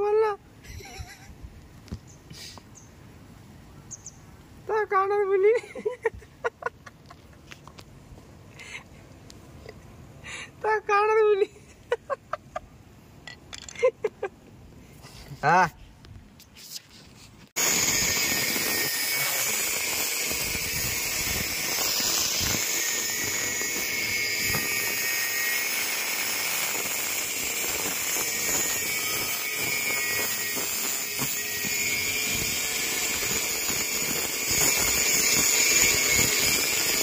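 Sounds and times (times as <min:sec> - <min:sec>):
angle grinder grinding metal: 0:17.6 - 0:37.0.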